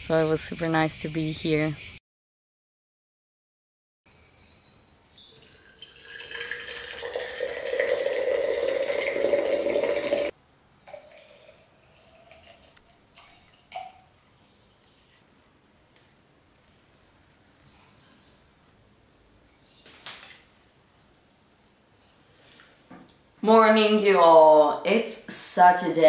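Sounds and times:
water pouring into glass jar: 0:05.3 - 0:10.3, 0:10.9 - 0:14.1.

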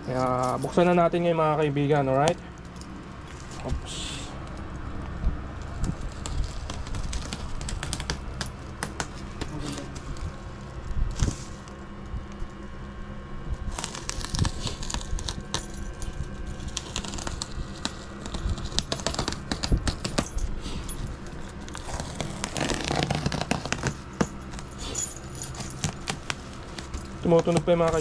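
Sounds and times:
plastic crinkling: 0:05.5 - 0:12.4, 0:13.6 - 0:28.0
scissors cutting bubble wrap: 0:05.6 - 0:10.4, 0:13.6 - 0:28.0.

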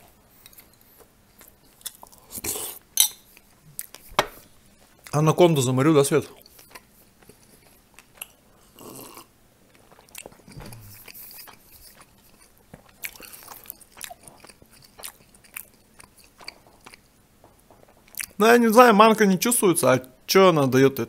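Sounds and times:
man chewing with lip smacks: 0:00.3 - 0:04.1, 0:06.4 - 0:18.4.

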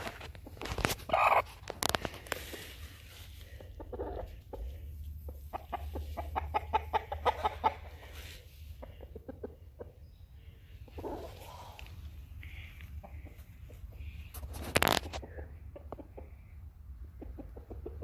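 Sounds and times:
hen clucking: 0:00.1 - 0:02.8, 0:03.4 - 0:18.0.

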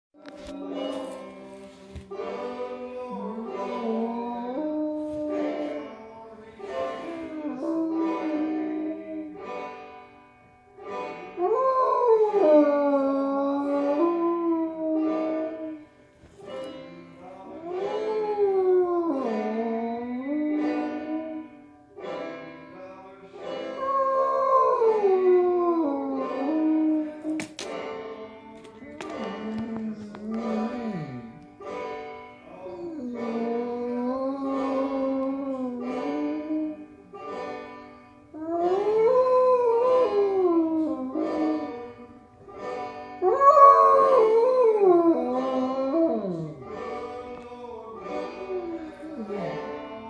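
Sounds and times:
banjo playing: 0:00.2 - 0:50.0
dog howling: 0:03.0 - 0:05.8, 0:07.0 - 0:09.4, 0:11.4 - 0:15.8, 0:17.5 - 0:21.6, 0:23.8 - 0:27.4, 0:29.2 - 0:31.4, 0:32.7 - 0:37.0, 0:38.4 - 0:42.1, 0:43.2 - 0:46.8.

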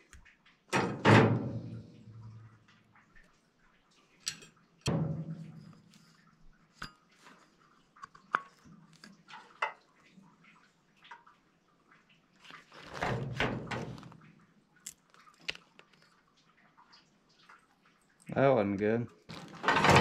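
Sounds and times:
metal clank: 0:19.6 - 0:20.0.

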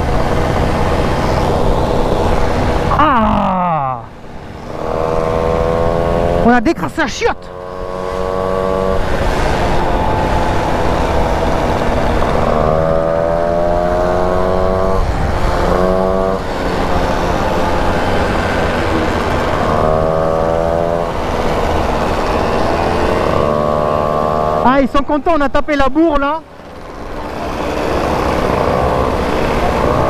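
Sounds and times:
wind rushing over microphone: 0:00.0 - 0:03.3, 0:07.4 - 0:25.6
two-stroke moped engine revving: 0:04.6 - 0:30.0.

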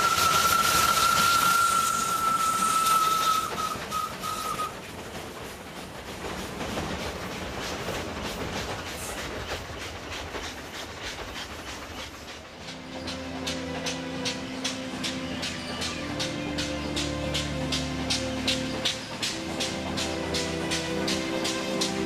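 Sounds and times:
steam locomotive whistle: 0:00.0 - 0:04.8
wheels clicking over rail joints: 0:00.0 - 0:22.0.

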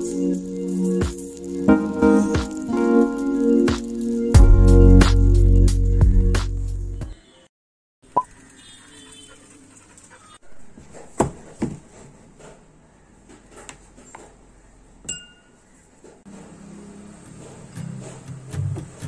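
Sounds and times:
metal spoon clinking on glass: 0:15.1 - 0:15.5.

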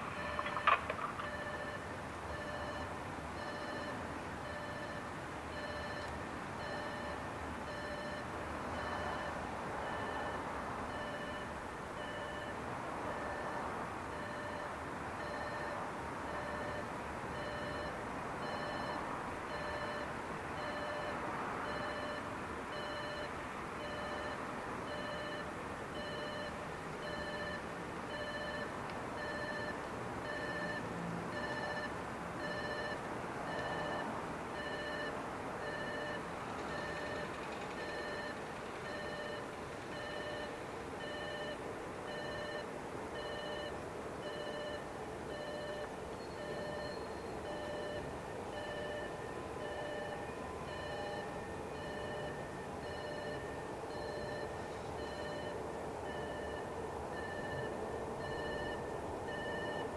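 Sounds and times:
level crossing warning bell: 0:34.6 - 0:42.6, 0:43.2 - 0:59.9.

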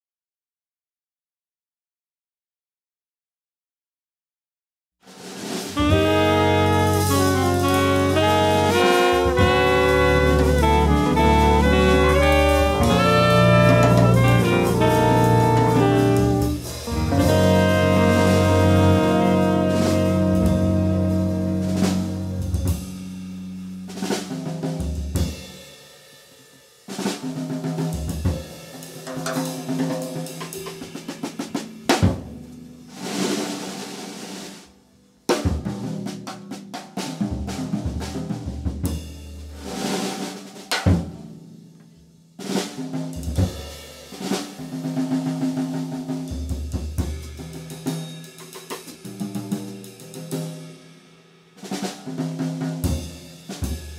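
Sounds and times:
drum kit solo: 0:05.0 - 0:53.9
jazz band chord: 0:05.4 - 0:24.9.

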